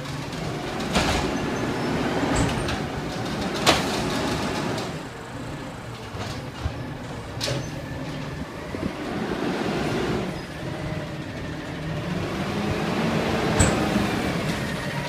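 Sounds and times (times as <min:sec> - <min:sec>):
garbage truck engine rumble: 0:00.0 - 0:15.0.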